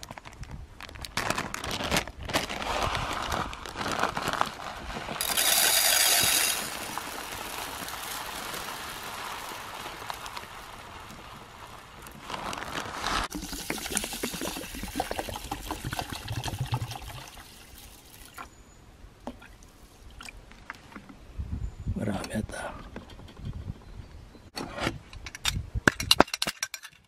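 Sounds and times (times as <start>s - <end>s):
plastic bag crinkling: 0.0s - 15.1s
rice grains pouring into pot: 5.2s - 18.0s.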